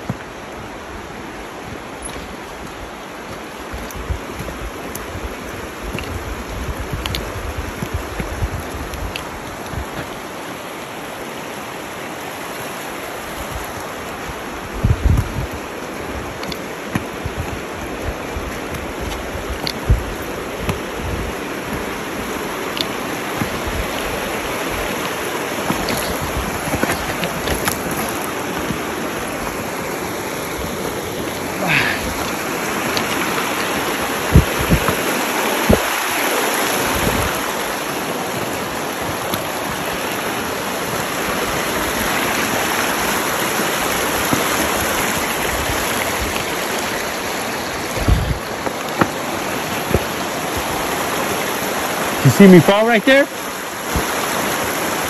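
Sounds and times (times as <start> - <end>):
water rushing over rocks: 0.0 - 55.0.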